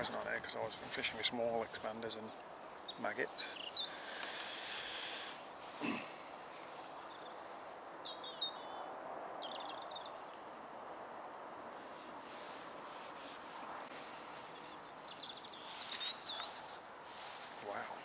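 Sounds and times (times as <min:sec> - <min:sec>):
steady outdoor background: 0:00.0 - 0:18.0.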